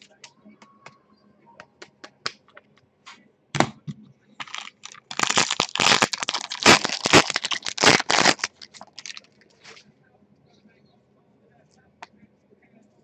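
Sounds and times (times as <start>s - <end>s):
foil wrapper tearing and crinkling: 4.4s - 9.3s
plastic sleeve rustling: 4.4s - 9.8s.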